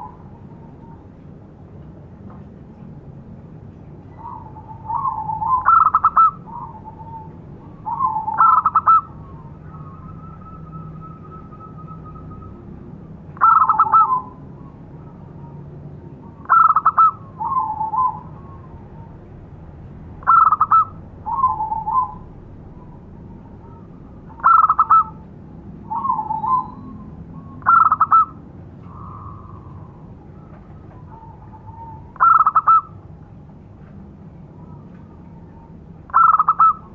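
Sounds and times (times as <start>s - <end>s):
dove cooing: 4.1s - 12.5s, 13.4s - 14.4s, 16.3s - 19.2s, 20.2s - 25.2s, 25.9s - 33.1s, 34.6s - 36.9s.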